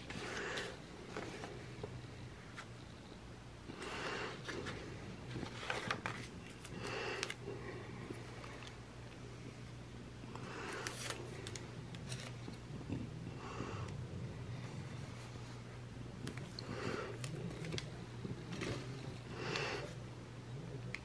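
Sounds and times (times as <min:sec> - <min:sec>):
steady low hum: 0:00.0 - 0:21.0
paper rustling: 0:04.4 - 0:07.4, 0:10.7 - 0:12.6.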